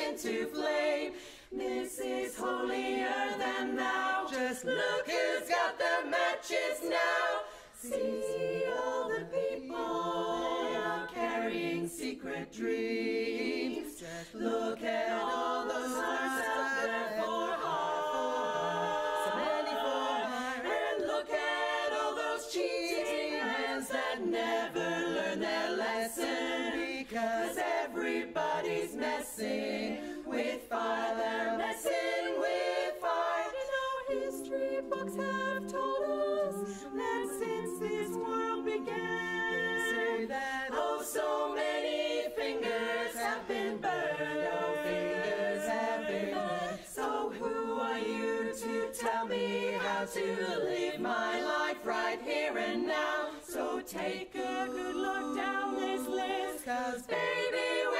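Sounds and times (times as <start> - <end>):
women singing in close harmony: 0.0 - 57.9.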